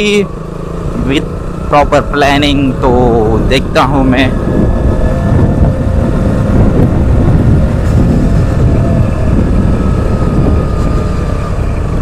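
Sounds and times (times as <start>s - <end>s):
motorcycle engine rumble: 0.0s - 12.0s
wind noise on microphone: 3.0s - 12.0s.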